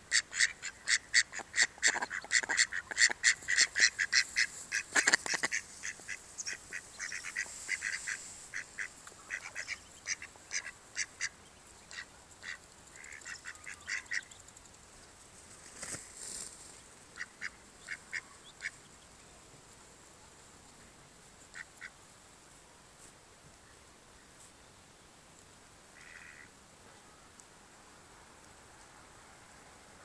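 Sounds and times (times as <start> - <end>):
ducks calling: 0.1 - 14.4.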